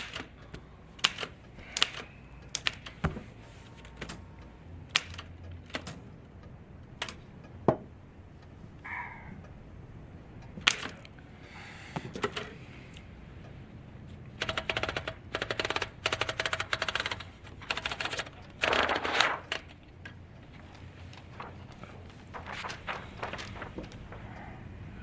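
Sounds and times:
typewriter key clacks: 4.9s - 6.0s, 10.6s - 11.0s
paper pulled from typewriter roller: 18.6s - 19.7s, 21.0s - 24.2s.

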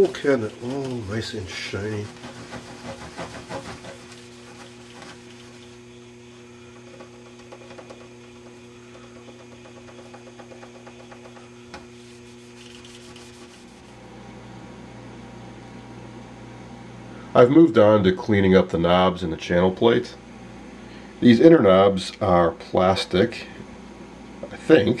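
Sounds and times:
fingertip rubbing plastic: 0.0s - 5.8s, 6.8s - 14.0s
steady hum: 0.0s - 25.0s.

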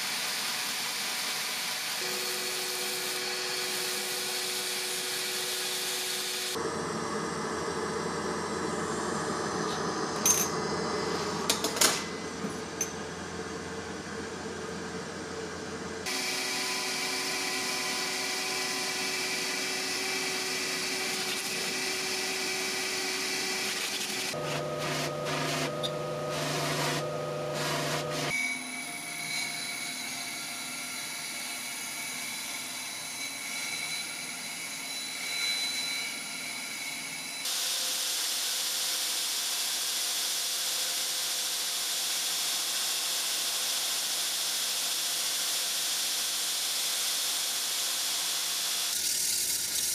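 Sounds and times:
power tools cutting: 0.0s - 6.7s, 16.0s - 49.9s
belt grinder grinding steel: 16.1s - 28.4s.

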